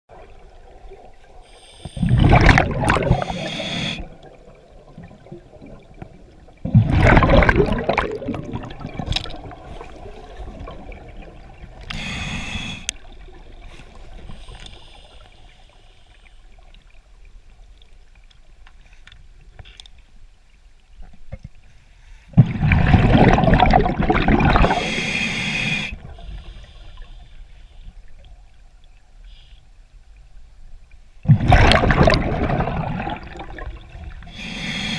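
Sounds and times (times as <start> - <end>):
regulator gurgling and hiss: 1.4 - 4.3, 11.8 - 13.1, 24.0 - 27.3, 34.2 - 34.9
diver exhaling bubbles underwater: 1.9 - 4.4, 6.6 - 12.8, 22.4 - 25.8, 31.2 - 34.9.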